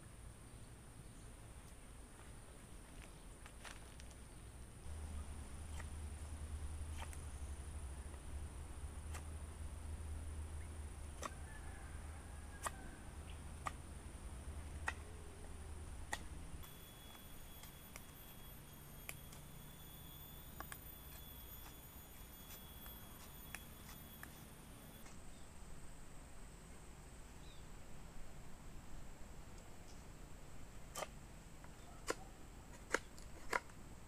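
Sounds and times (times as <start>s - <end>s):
thin steady high tone: 16.6s - 25.1s.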